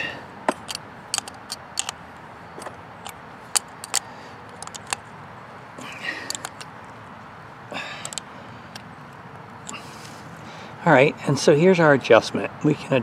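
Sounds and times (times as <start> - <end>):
light metallic clicks and taps: 0.5 - 2.0, 2.6 - 5.0, 6.2 - 7.0.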